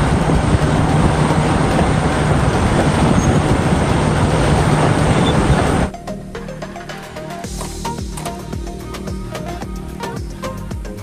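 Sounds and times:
bulldozer diesel engine under load: 0:00.0 - 0:05.9
bulldozer track noise: 0:00.0 - 0:05.9.

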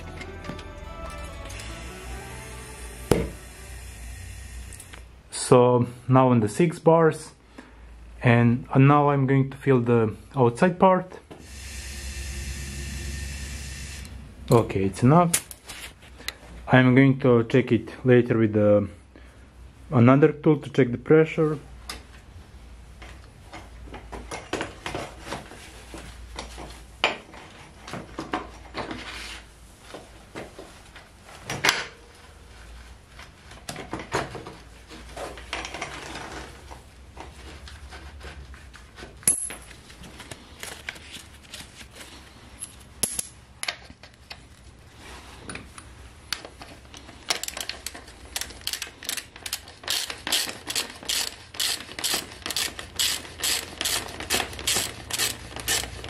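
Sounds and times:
socket ratchet clicking: 0:47.4 - 0:56.0.

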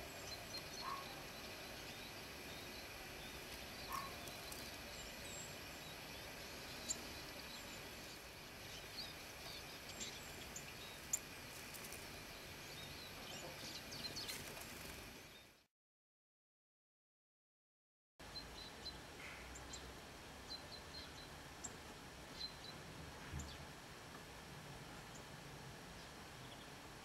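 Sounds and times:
faint steady hiss: 0:00.0 - 0:15.7, 0:18.2 - 0:27.0
high bird chirps: 0:03.9 - 0:04.7.

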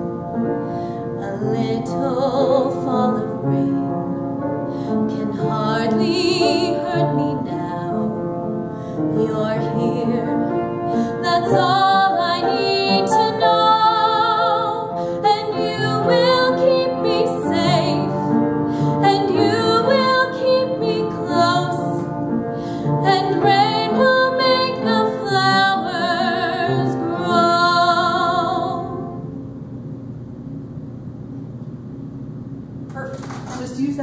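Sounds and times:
woman singing a ballad: 0:01.1 - 0:04.1, 0:04.8 - 0:22.2, 0:22.8 - 0:29.2.

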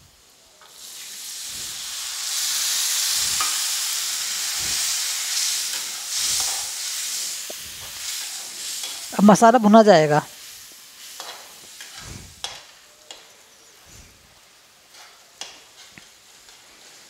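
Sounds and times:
oil sizzling and hissing: 0:00.0 - 0:17.0.

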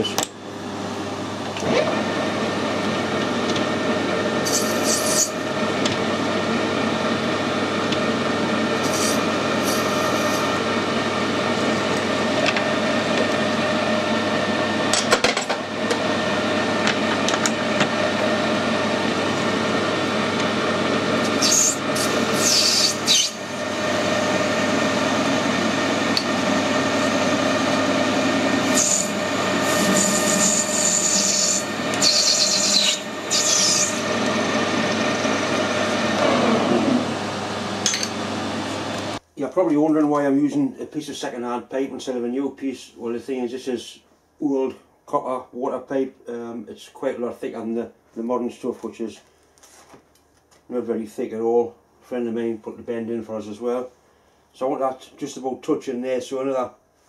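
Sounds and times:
lathe motor humming and whining: 0:00.2 - 0:39.2
tool scraping brass: 0:04.4 - 0:05.4, 0:21.2 - 0:23.4, 0:28.6 - 0:34.0.

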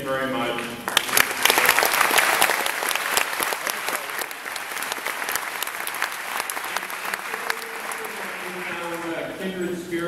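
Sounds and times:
audience applauding: 0:00.9 - 0:09.4.

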